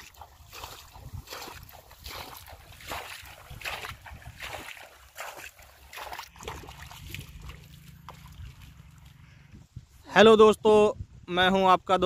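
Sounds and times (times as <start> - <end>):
water splashing and sloshing: 0.0 - 10.0
person wading through water: 0.0 - 10.1.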